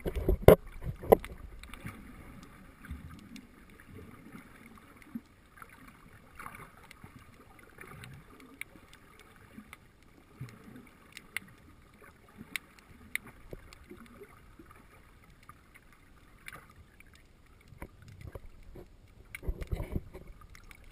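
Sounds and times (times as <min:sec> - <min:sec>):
muffled underwater rumble: 0:00.0 - 0:20.9
sharp clicks and crackles: 0:00.0 - 0:20.9.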